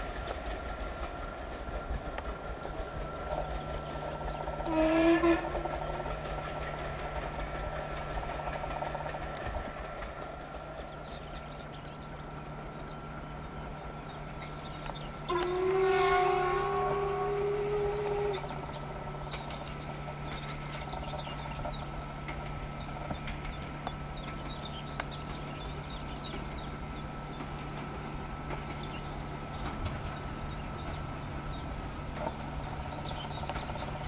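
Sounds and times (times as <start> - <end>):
steam train rumble: 0.0 - 34.0
birds chirping: 0.2 - 34.0
steam locomotive whistle: 4.6 - 5.8, 15.2 - 18.9.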